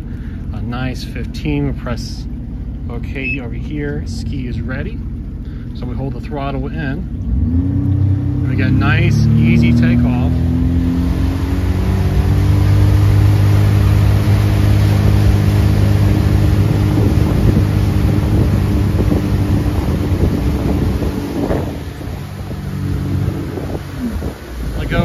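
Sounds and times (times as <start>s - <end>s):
personal watercraft engine: 0.0s - 25.0s
water rushing in wake: 0.0s - 25.0s
wind on microphone: 9.8s - 25.0s.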